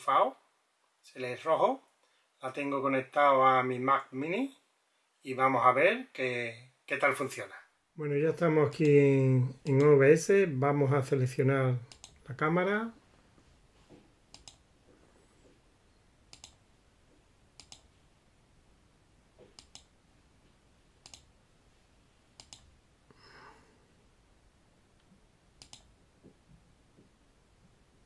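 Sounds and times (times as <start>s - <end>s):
computer mouse button clicking: 17.6s - 17.8s, 22.4s - 22.6s, 25.6s - 25.9s.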